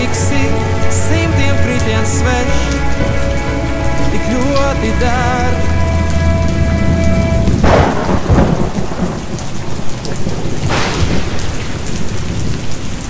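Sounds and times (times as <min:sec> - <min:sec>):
held music note: 0:00.0 - 0:08.3
steady rain: 0:00.0 - 0:13.0
thunderclaps: 0:05.9 - 0:13.0.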